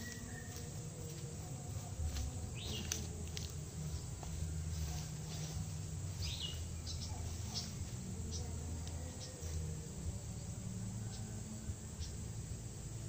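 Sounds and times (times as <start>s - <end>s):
bird chirps: 0.0s - 0.8s, 6.1s - 9.6s
rustling tall grass: 0.0s - 10.7s
low outdoor hum: 0.0s - 13.0s.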